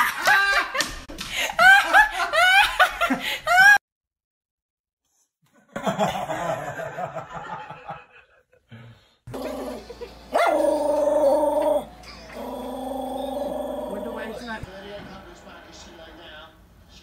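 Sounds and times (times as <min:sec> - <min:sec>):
dog howling: 0:10.4 - 0:14.5.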